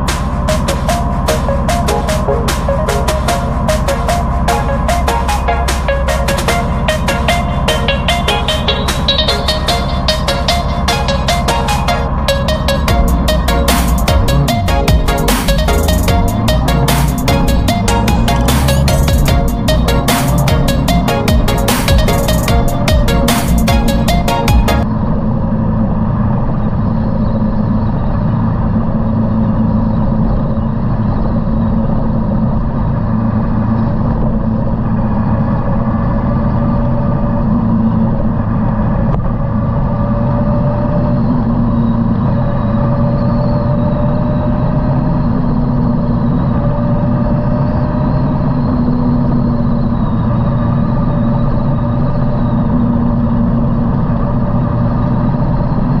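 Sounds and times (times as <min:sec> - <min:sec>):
motorcycle engine running: 0:00.0 - 0:43.2.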